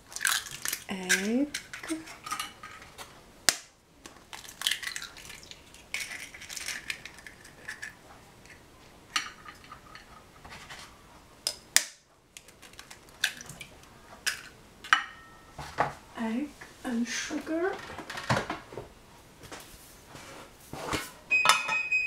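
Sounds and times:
eggshell crackling: 0:00.0 - 0:10.4, 0:11.5 - 0:14.9.

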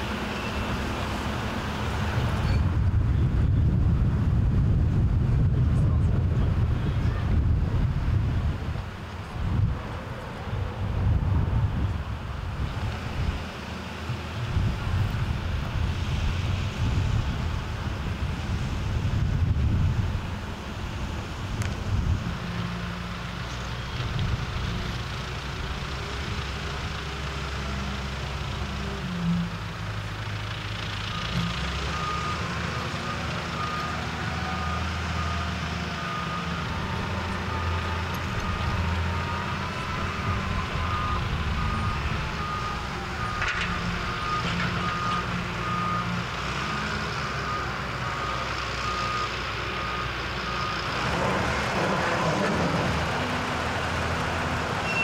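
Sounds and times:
heavy vehicle engine running: 0:00.0 - 0:55.0
reversing alarm beeping: 0:31.1 - 0:50.9.

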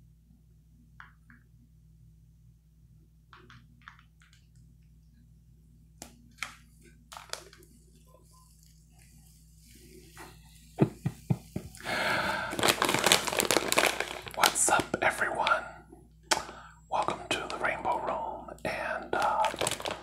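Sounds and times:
plastic bag crinkling: 0:06.3 - 0:09.2, 0:11.8 - 0:15.5, 0:16.3 - 0:20.0.

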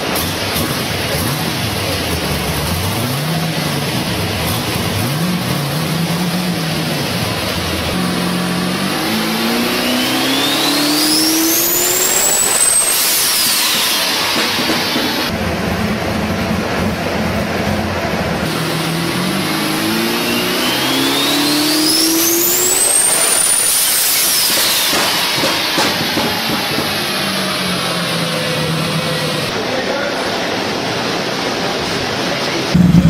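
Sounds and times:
car engine revving: 0:00.0 - 0:29.7, 0:30.3 - 0:33.0
high turbo whistle: 0:08.0 - 0:15.3, 0:18.6 - 0:29.5.

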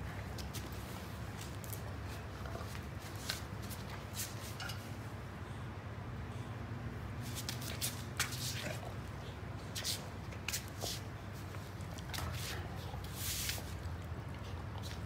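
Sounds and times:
steady low background hum: 0:00.0 - 0:15.0
puppy mouthing and licking: 0:08.2 - 0:15.0.

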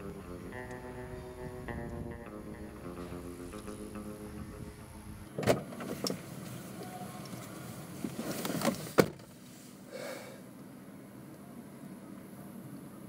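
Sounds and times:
car door clunking open: 0:05.3 - 0:06.3, 0:08.4 - 0:09.3
car door slamming shut: 0:05.4 - 0:06.0.

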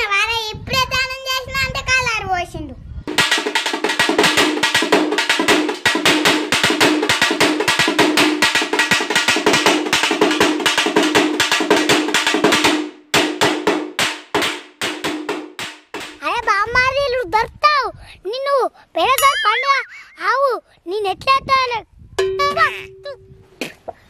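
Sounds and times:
rapid drumming: 0:03.1 - 0:16.2
steady held tone: 0:19.2 - 0:20.4, 0:22.2 - 0:23.6.

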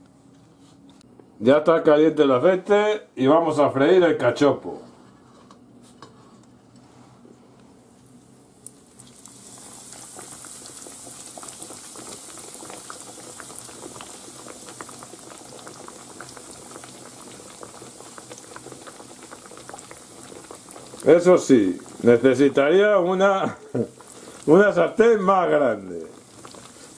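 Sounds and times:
cutlet sizzling in oil: 0:07.8 - 0:26.9.

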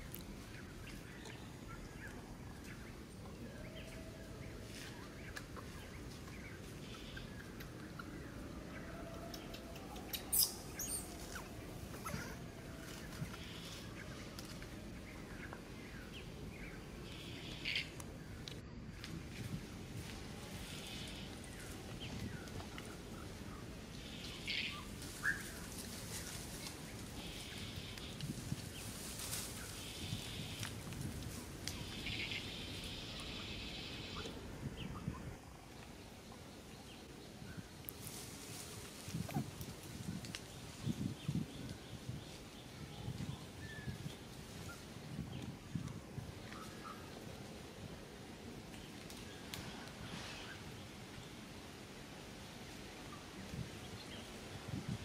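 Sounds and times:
low background noise: 0:00.0 - 0:55.0
outdoor background: 0:00.0 - 0:55.0
high animal chirps and squeaks: 0:10.1 - 0:12.4.

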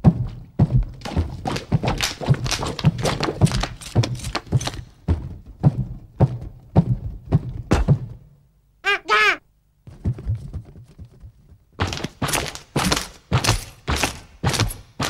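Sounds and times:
dull thunks with low thud: 0:00.0 - 0:08.3.

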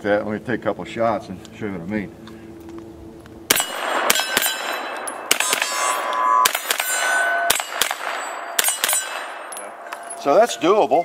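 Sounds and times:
pistol gunshots: 0:03.5 - 0:10.4
steel targets clanging: 0:03.5 - 0:11.0.

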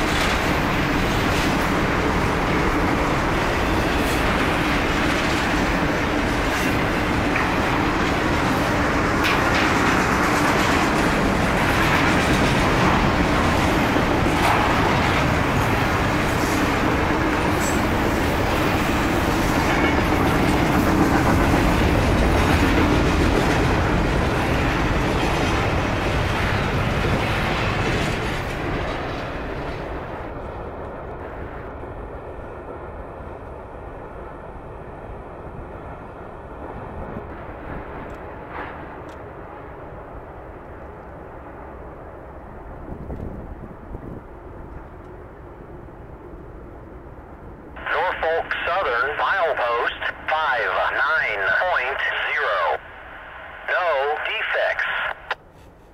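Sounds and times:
train wheels rumbling on rail: 0:00.0 - 0:47.9.

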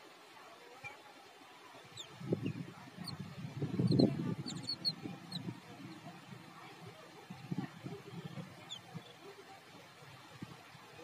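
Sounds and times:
birds giving high squeaky calls: 0:01.9 - 0:05.5.

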